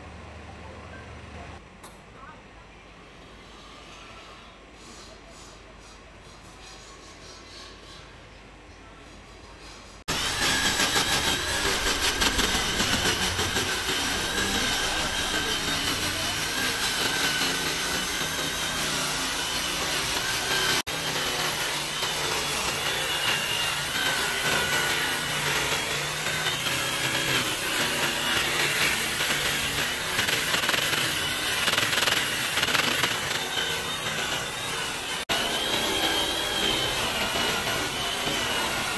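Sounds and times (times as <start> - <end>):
electric drill grinding wood: 10.1 - 38.9.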